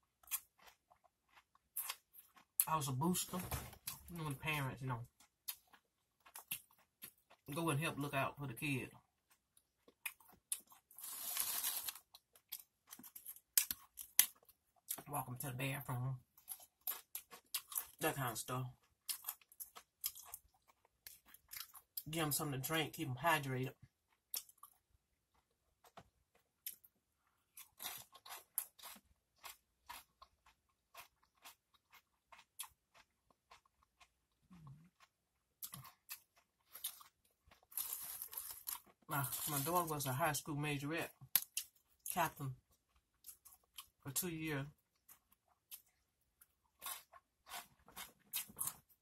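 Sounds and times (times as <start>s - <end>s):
chewing crunchy chips: 0.0s - 2.8s, 5.0s - 7.6s, 8.9s - 15.1s, 16.2s - 22.1s, 23.7s - 39.9s, 41.1s - 44.0s, 44.6s - 49.0s
tortilla chips rustling and crackling: 10.0s - 14.4s, 35.7s - 39.9s.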